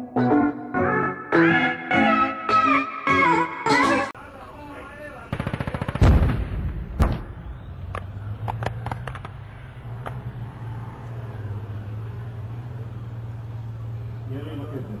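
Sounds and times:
automatic gunfire: 5.3s - 6.5s
single gunshots: 5.3s - 7.4s
explosion with low rumble: 6.0s - 7.6s.

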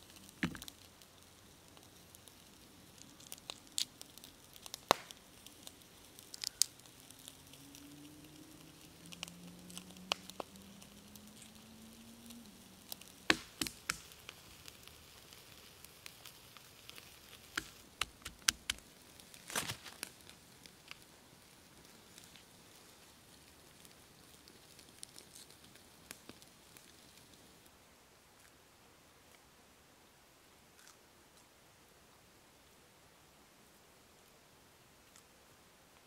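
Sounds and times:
walnut shells cracking: 6.3s - 6.8s, 17.5s - 18.8s.

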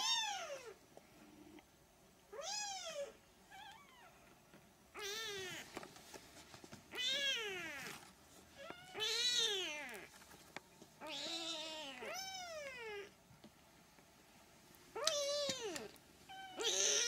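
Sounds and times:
kittens mewing: 15.0s - 17.0s.

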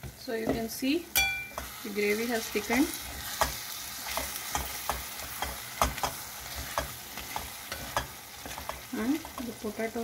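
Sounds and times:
spatula scraping metal pan: 2.6s - 9.6s.

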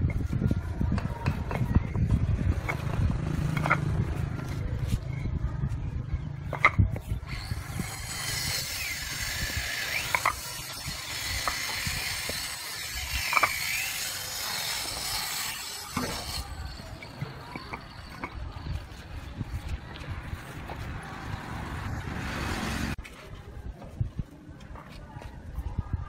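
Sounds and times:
concrete blocks knocking together: 1.0s - 3.9s, 6.5s - 7.1s, 7.9s - 18.5s.

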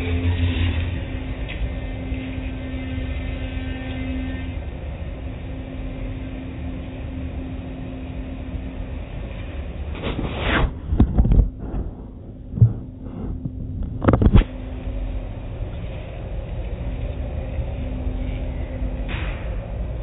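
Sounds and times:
low rumble with faint hum: 0.0s - 20.0s
heavy thumps: 10.0s - 14.5s.

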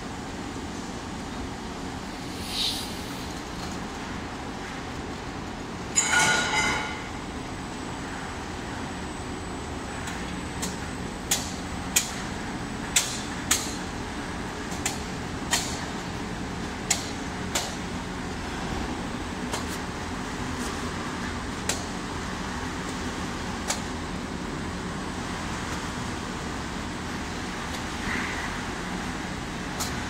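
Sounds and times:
machinery running hum: 0.0s - 30.0s
metallic clang: 6.0s - 7.2s.

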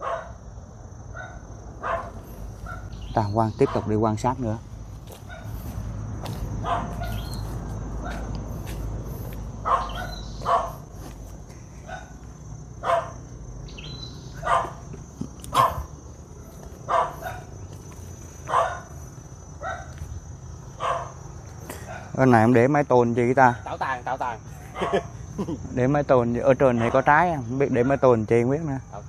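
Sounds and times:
dog barking: 0.0s - 0.4s, 1.1s - 3.0s, 3.6s - 4.0s, 5.2s - 5.6s, 6.6s - 7.3s, 8.0s - 8.4s, 9.6s - 10.9s, 11.8s - 12.2s, 12.8s - 13.3s, 14.4s - 14.9s, 15.5s - 17.5s, 18.5s - 19.0s, 19.6s - 20.0s, 20.8s - 21.2s, 21.8s - 22.2s, 24.7s - 25.2s, 26.7s - 27.1s.

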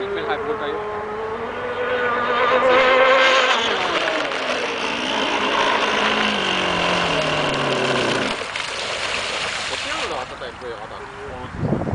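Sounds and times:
model boat motor whining: 1.4s - 10.1s.

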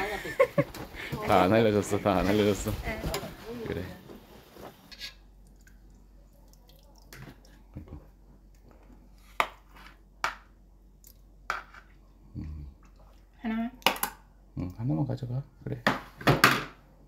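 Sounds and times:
broth dripping into pot: 5.4s - 7.8s.

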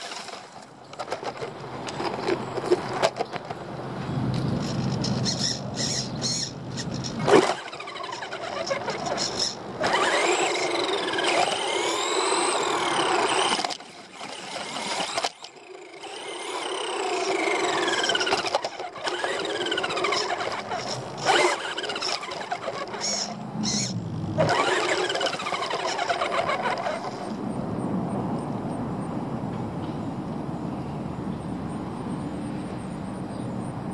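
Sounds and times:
rc car motor whining: 0.0s - 3.3s, 4.6s - 27.4s.

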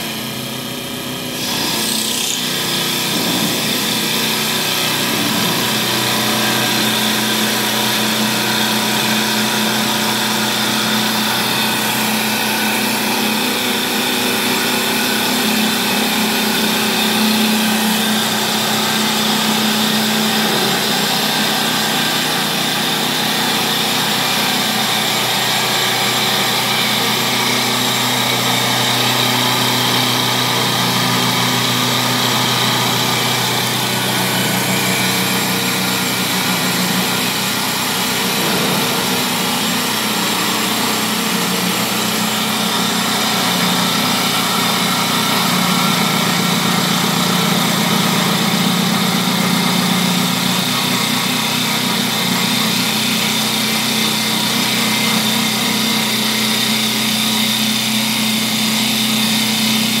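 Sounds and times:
lathe motor hum: 0.0s - 60.0s
wood cutting hiss: 1.3s - 46.0s.

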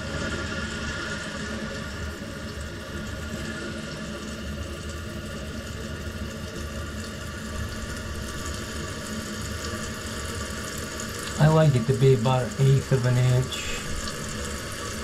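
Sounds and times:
toilet tank refilling hiss: 0.3s - 15.0s.

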